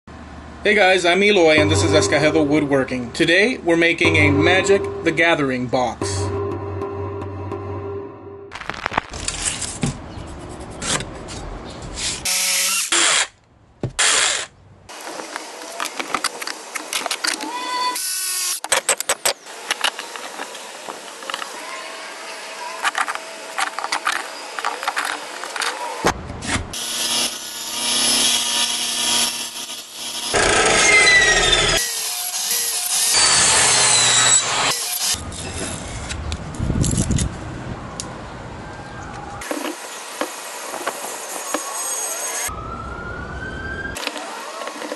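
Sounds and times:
workshop sounds: 4.0s - 17.6s, 22.7s - 26.8s, 39.4s - 42.3s
saw motor humming: 6.0s - 8.5s, 26.8s - 35.2s
power tool bursts: 26.8s - 35.1s
table saw cutting wood: 26.8s - 35.2s, 39.4s - 42.5s.

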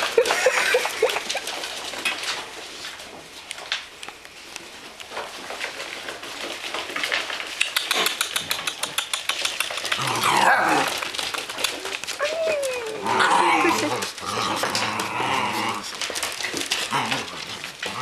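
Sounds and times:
puppy claws pattering on wood floor: 0.0s - 18.0s
puppy whine: 7.8s - 18.0s.

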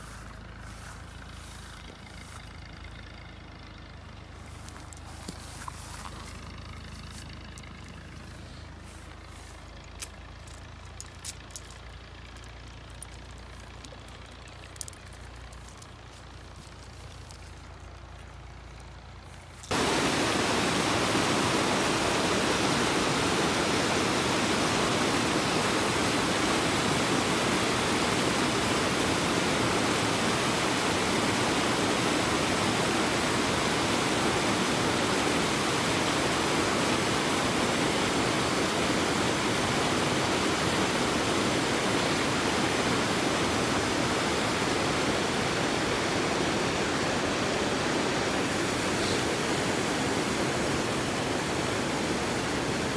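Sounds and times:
loud steady rushing noise: 19.7s - 52.9s.

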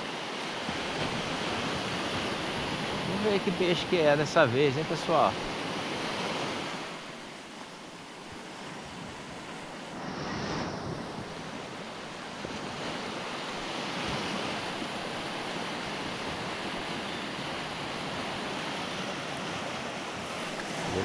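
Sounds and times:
ocean surf washing onto beach: 0.0s - 21.0s
wind on microphone: 8.7s - 13.2s, 15.8s - 21.0s.

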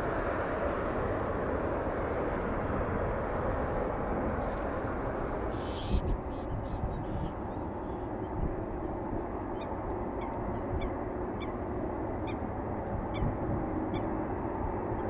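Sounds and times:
distant jet airliner rumble: 0.0s - 15.0s
bird short high calls: 5.5s - 8.1s.

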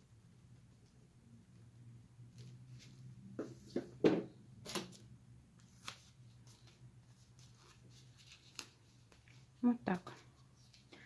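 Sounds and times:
paper tubes rustling: 5.6s - 11.0s.

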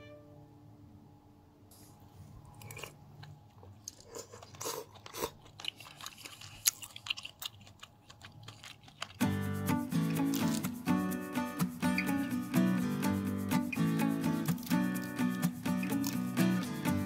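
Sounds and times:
chewing: 2.5s - 9.3s.

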